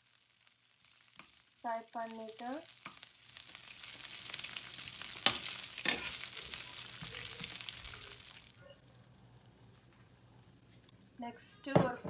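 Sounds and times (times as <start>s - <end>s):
nuts sizzling in hot fat: 0.0s - 11.8s
metal tongs clicking on pan: 5.2s - 6.3s.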